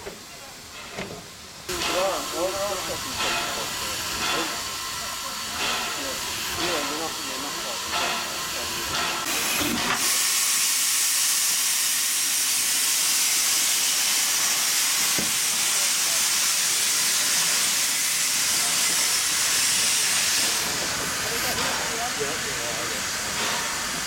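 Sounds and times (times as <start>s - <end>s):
steam locomotive blowing off steam: 0.0s - 24.0s.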